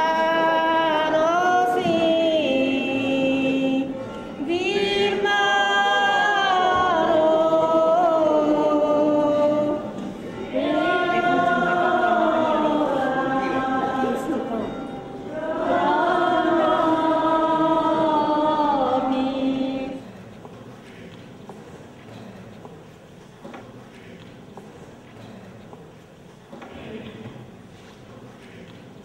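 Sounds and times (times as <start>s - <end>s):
group singing a hymn: 0.0s - 20.2s.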